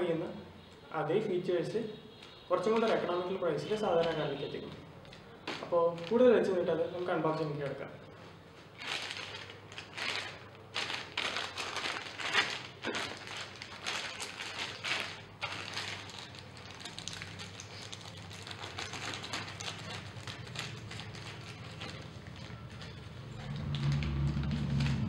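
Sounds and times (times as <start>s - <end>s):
plastic bag crackling and rustling: 2.7s - 7.8s, 8.4s - 25.0s
scissors cutting plastic: 8.8s - 25.0s.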